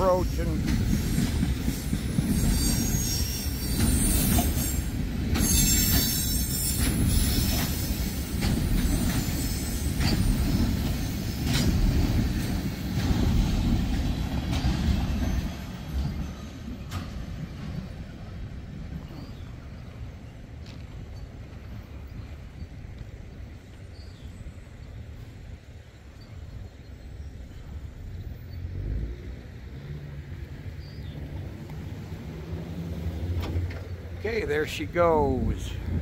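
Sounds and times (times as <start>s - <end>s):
train wheels rumbling on rail: 0.0s - 36.0s
wheel squeal: 0.9s - 13.2s.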